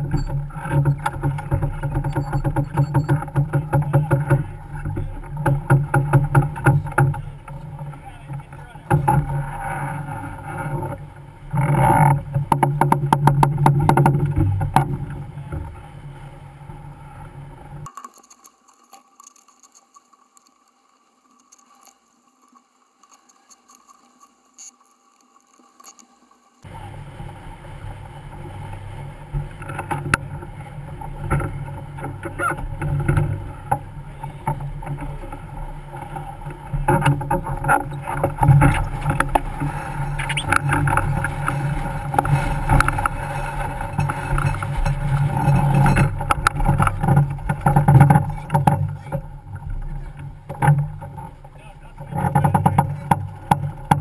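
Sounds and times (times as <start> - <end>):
water rushing past hull: 26.6 - 54.0.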